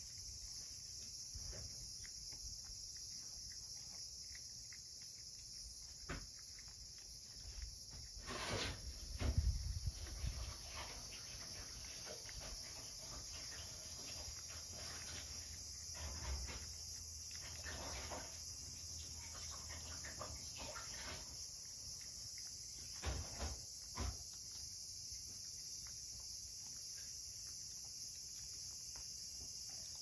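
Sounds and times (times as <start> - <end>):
cat chewing and lapping: 0.0 - 30.0.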